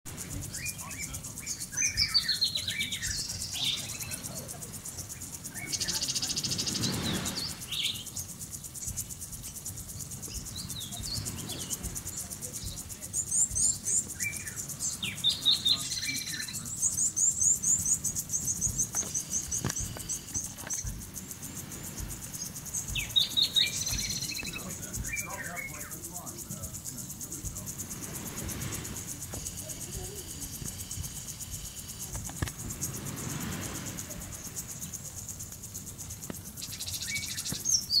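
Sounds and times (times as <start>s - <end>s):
small songbirds twittering: 0.1s - 38.0s
sprinkler spray rushing: 0.1s - 38.0s
steady high hiss: 0.1s - 38.0s.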